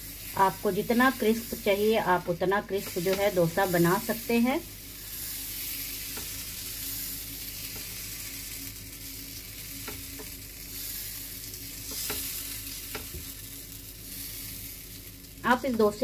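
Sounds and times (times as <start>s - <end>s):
batter sizzling on a pan: 0.0s - 16.0s
spoon tapping a pan: 9.8s - 10.4s.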